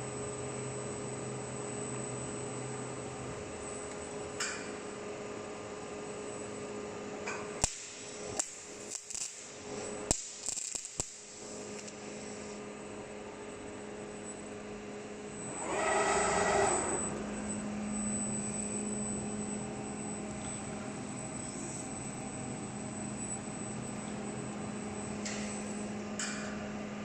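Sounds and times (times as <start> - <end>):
electrical hum: 11.4 - 27.0
mechanical whirr: 15.2 - 24.0.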